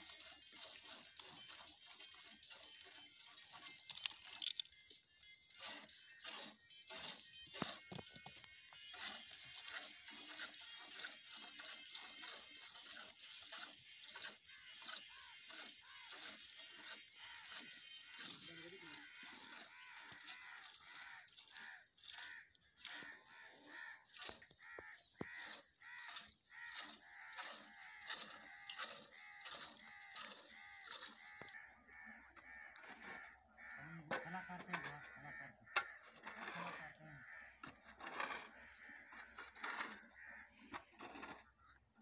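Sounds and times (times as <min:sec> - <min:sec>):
flock of birds calling: 0:18.4 - 0:41.3.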